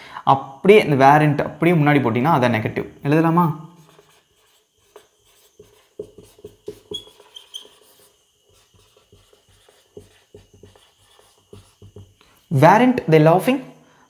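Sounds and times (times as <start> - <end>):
marker pen scratching on whiteboard: 3.8 - 12.6
marker tip squeaks: 4.0 - 12.0.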